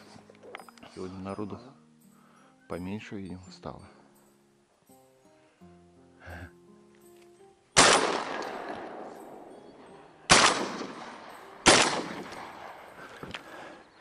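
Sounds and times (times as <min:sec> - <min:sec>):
soft background music: 0:00.0 - 0:14.0
shotgun shots: 0:07.8 - 0:09.2, 0:10.3 - 0:12.8.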